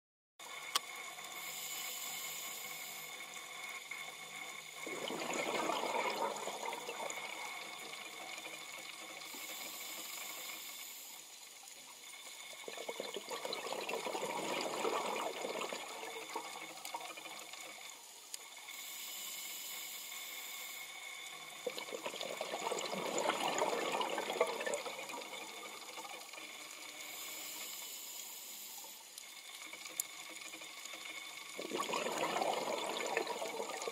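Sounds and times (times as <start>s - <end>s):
regulator inhaling hiss: 1.2s - 4.8s, 9.2s - 11.5s, 18.6s - 21.6s, 26.7s - 29.5s
exhaled bubbles rushing: 4.8s - 9.3s, 12.6s - 17.6s, 21.6s - 26.4s, 31.5s - 33.9s.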